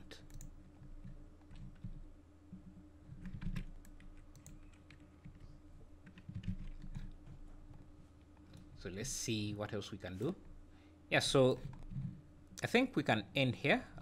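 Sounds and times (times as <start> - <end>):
low steady hum: 0.0 - 14.0
keyboard and mouse clicks: 0.2 - 2.0, 2.6 - 8.7.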